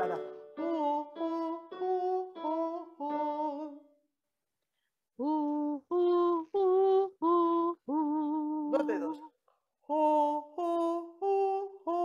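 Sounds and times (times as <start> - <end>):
woman singing vocal warm-up: 5.2 - 9.3, 9.9 - 12.0.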